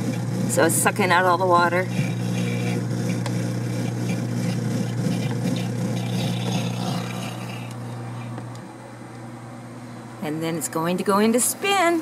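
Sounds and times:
washing machine motor hum: 0.0 - 12.0
water being sucked out: 1.8 - 7.7.

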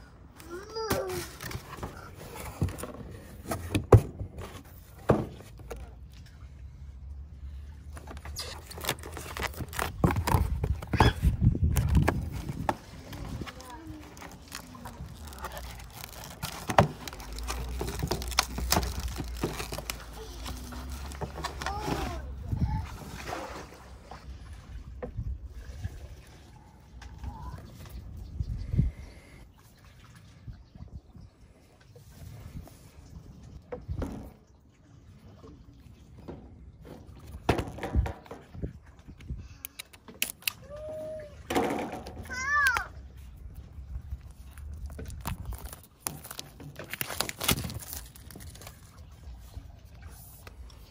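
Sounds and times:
cardboard box handling: 7.9 - 22.3, 44.8 - 48.9
packaging knocks and rustles: 7.9 - 22.3, 44.7 - 48.9
paper wrapping tearing and crinkling: 8.0 - 11.0, 11.6 - 22.3, 44.3 - 49.0.

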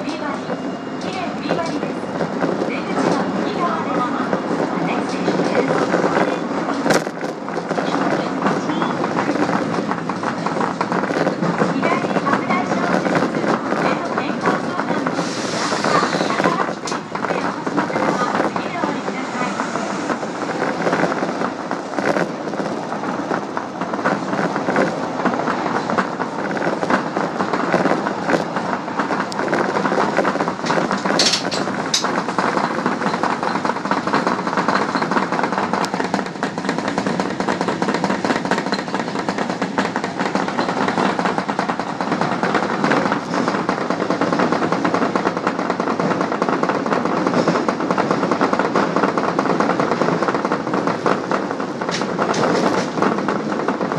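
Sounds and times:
train wheels on rails: 0.0 - 53.9
clicks over rail joints: 23.9 - 53.9.

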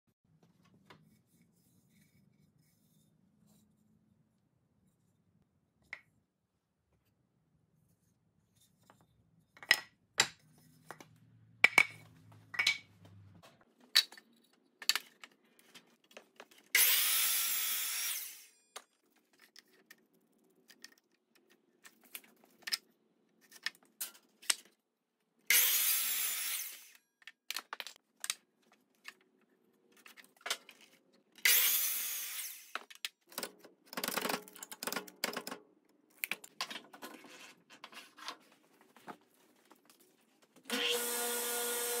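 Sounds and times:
power saw cutting wood: 16.8 - 18.5, 25.5 - 27.0, 31.4 - 32.7, 40.7 - 42.0.

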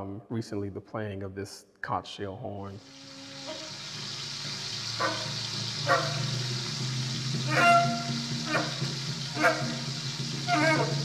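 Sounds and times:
sizzle of deep-frying oil: 2.8 - 11.0
saxophone mouthpiece squeals: 7.5 - 8.8, 10.4 - 11.0.

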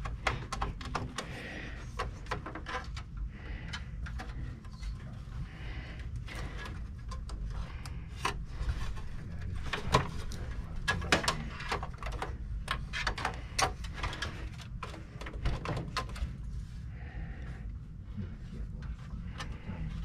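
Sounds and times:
clicks and knocks of computer parts: 0.0 - 4.8, 6.2 - 16.4.

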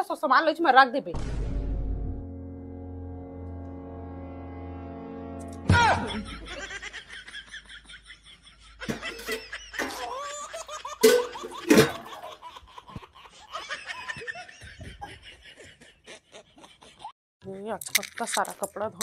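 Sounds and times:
laughter in bursts: 6.0 - 17.1.

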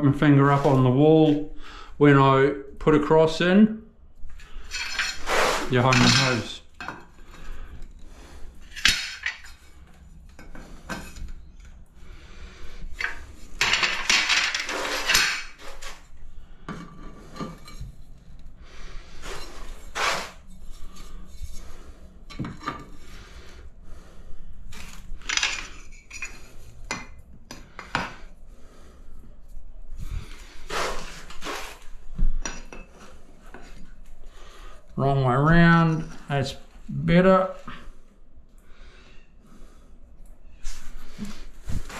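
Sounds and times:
tile scraping: 4.4 - 6.6, 13.0 - 16.1, 19.2 - 23.0, 30.2 - 33.8
ceramic tiles clinking: 4.6 - 7.1, 8.6 - 9.6, 13.0 - 15.6, 25.2 - 27.2.

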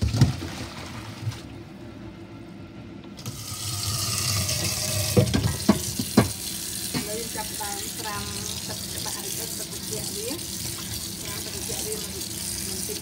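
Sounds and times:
tap running into metal pot: 4.6 - 7.2.

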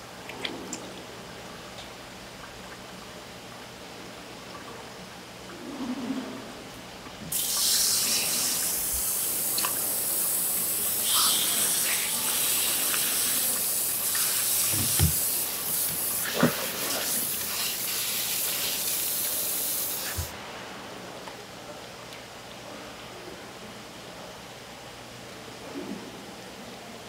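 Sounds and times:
water running from a tap: 7.3 - 20.3.

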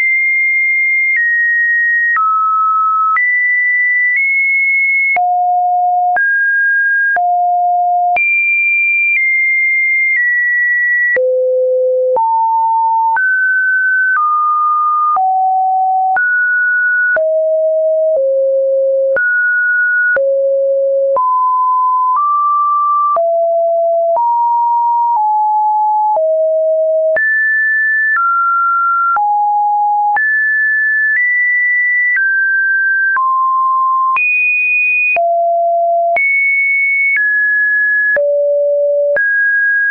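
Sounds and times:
sine test tone changing pitch: 35.2 - 36.4, 38.2 - 39.3.

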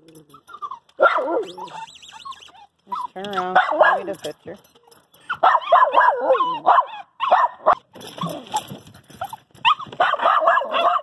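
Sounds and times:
small dog whining and yipping: 0.2 - 3.5, 5.2 - 11.0.

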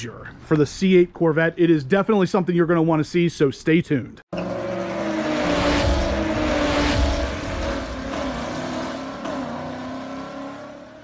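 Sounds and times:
car engine revving: 4.3 - 11.0.

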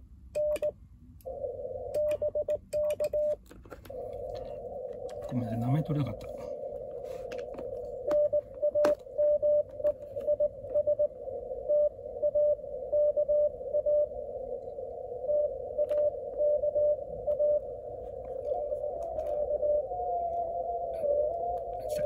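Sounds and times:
receiver hiss: 0.0 - 22.0
morse code tone: 8.0 - 11.1.

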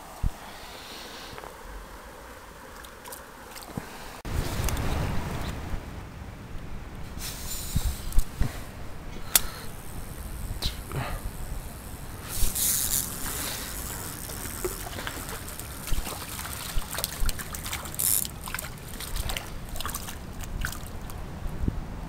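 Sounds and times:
river water trickling and sloshing: 0.0 - 5.0, 12.1 - 21.6
fish splashing at surface: 12.4 - 21.2.

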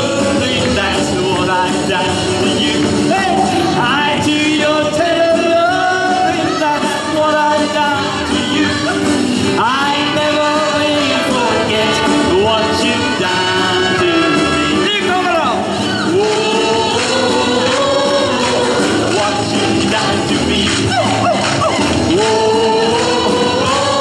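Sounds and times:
guitar accompaniment: 0.0 - 24.0
man singing: 0.0 - 24.0.

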